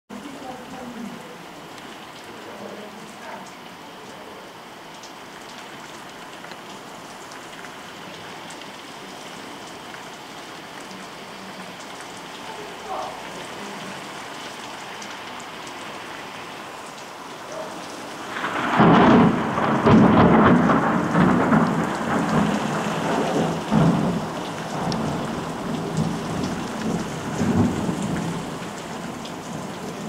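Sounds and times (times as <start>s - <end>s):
heavy rain falling: 0.1s - 30.0s
rolling thunderclap: 18.2s - 30.0s.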